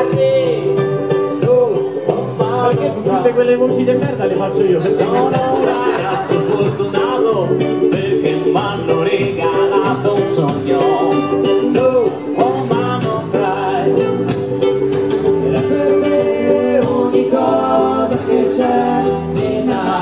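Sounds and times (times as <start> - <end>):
ukulele band playing: 0.0 - 20.0.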